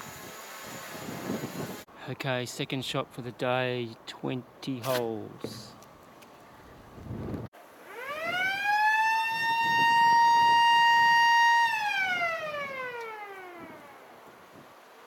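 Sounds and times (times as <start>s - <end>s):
warning siren wailing: 7.8s - 14.2s.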